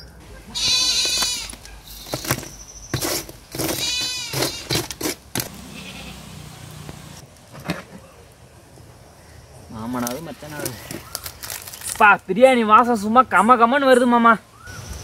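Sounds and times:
farm animal bleating: 0.4s - 1.6s, 3.7s - 4.8s, 5.5s - 6.2s
metal ladle scraping charcoal: 0.7s - 6.0s.

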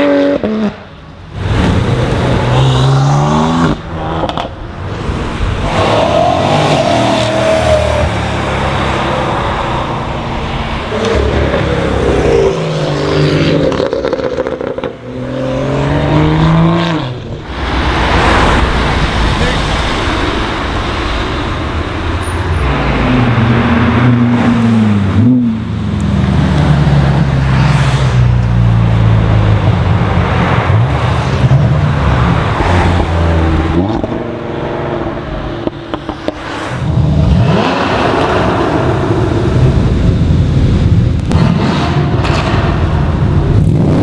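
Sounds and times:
car engines accelerating: 0.0s - 44.0s
engine revving: 10.9s - 19.8s, 36.0s - 40.0s, 41.2s - 44.0s.

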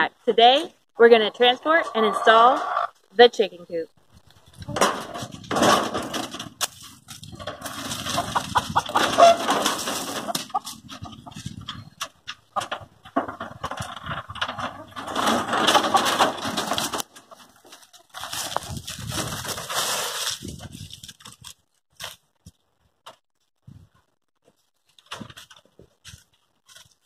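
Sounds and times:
hens clucking and squawking: 1.2s - 2.9s, 7.3s - 20.0s
wooden coop knocking and rattling: 4.7s - 6.7s, 7.3s - 19.6s, 25.0s - 26.0s.

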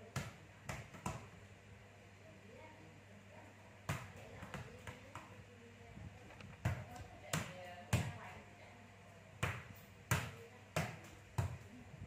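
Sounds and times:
ball bouncing on tiled floor: 0.0s - 1.4s, 3.9s - 5.4s, 6.2s - 8.3s, 9.4s - 11.8s.

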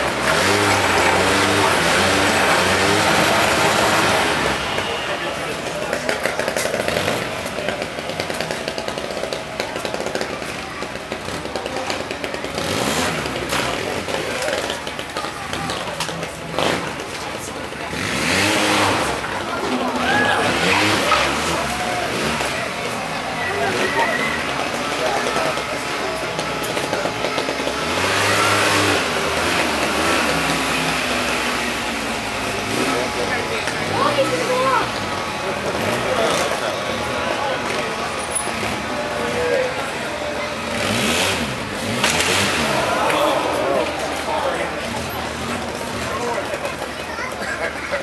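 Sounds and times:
atv engine putter: 0.0s - 48.0s.

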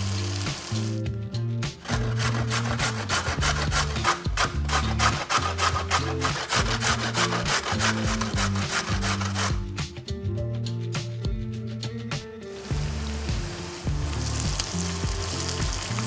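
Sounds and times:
carrot rasping on metal grater: 1.8s - 9.6s.

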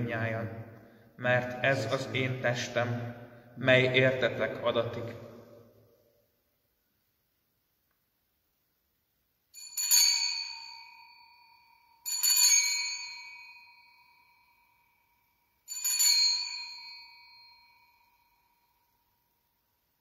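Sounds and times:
altar bells ringing: 9.5s - 19.6s.

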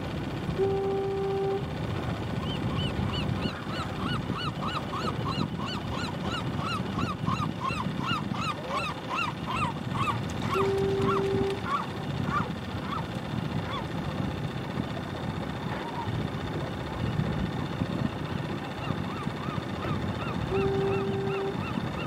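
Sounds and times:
boat engine rumble: 0.0s - 22.0s
gulls calling: 0.4s - 14.1s, 15.1s - 22.0s
brief steady hum: 0.6s - 1.8s, 10.4s - 11.8s, 20.5s - 21.8s.

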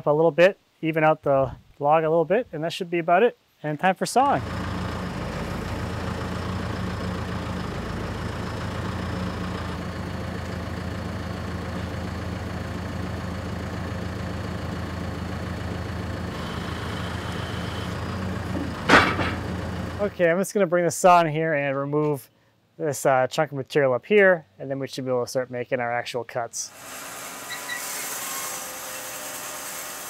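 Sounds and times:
engine idling: 4.4s - 20.2s.

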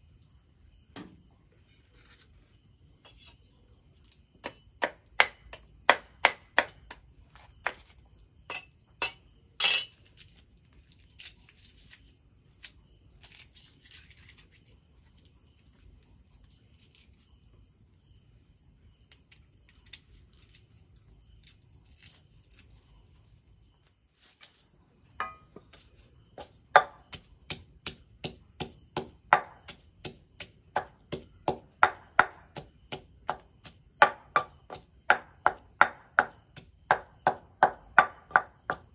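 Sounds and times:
crickets chirring: 0.0s - 38.9s
pestle pounding in mortar: 4.4s - 7.0s, 25.2s - 25.7s, 26.4s - 38.9s
knife chopping on wooden block: 4.4s - 7.9s, 25.2s - 25.8s, 26.4s - 38.9s
small handling sounds: 9.8s - 17.3s, 23.8s - 26.1s.

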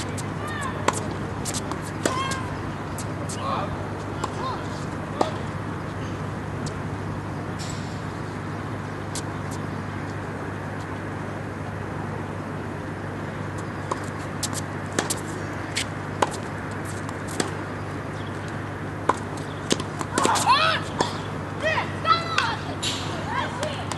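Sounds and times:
tennis balls bouncing and struck: 0.0s - 6.8s, 13.5s - 23.9s
traffic rumble: 0.0s - 23.9s.

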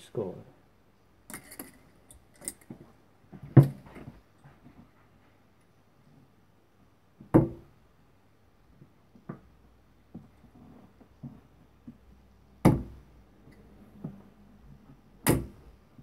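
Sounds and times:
darts thudding into dartboard: 12.6s - 13.0s, 15.2s - 15.6s.

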